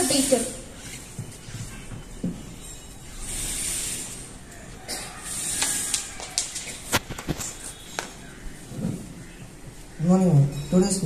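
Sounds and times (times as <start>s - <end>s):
microphone handling rustle: 6.7s - 7.7s.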